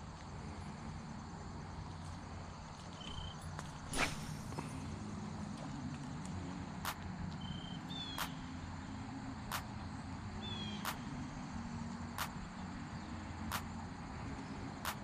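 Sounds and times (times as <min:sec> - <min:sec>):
sharp ticks: 0:06.8 - 0:07.1, 0:09.5 - 0:09.7, 0:12.2 - 0:12.4, 0:13.5 - 0:13.7.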